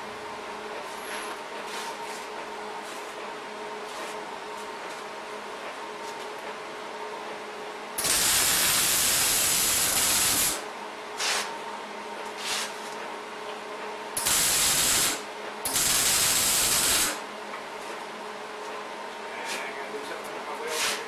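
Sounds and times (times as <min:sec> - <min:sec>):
welding arc crackling: 0:08.0 - 0:10.7, 0:14.2 - 0:17.2.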